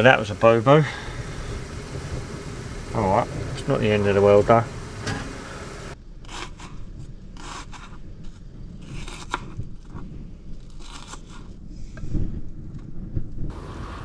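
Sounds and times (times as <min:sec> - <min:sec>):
dull knocks: 0:01.1 - 0:06.0
knife dicing onion on plastic board: 0:06.3 - 0:06.7, 0:07.4 - 0:07.9.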